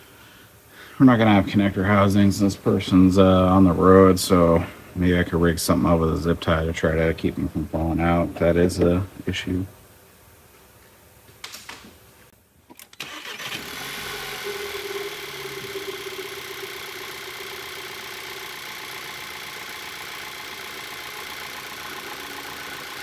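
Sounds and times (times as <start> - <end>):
car engine starting and idling: 12.7 - 23.0.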